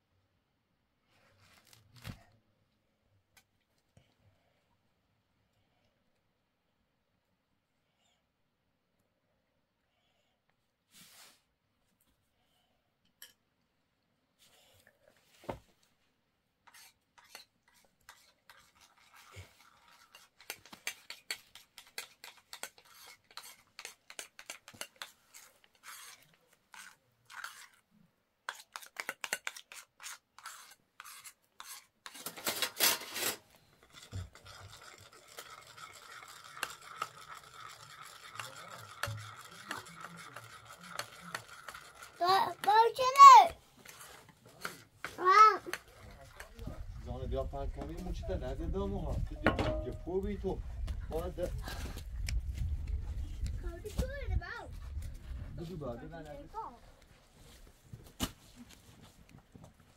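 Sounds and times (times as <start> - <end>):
metal spoon scraping ceramic bowls: 16.7 - 27.8, 28.5 - 42.7.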